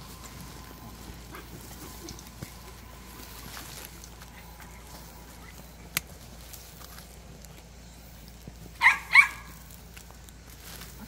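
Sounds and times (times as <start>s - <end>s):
faint scuffs and rustles: 0.0s - 11.0s
dog barking: 8.8s - 9.6s.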